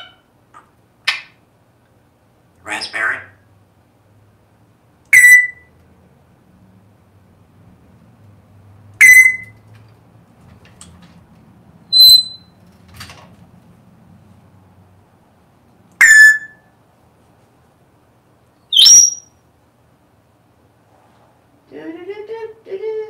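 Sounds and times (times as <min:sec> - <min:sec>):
parrot whistled calls: 0:05.1 - 0:05.7, 0:09.0 - 0:09.5, 0:11.9 - 0:12.5, 0:16.0 - 0:16.6, 0:18.7 - 0:19.4.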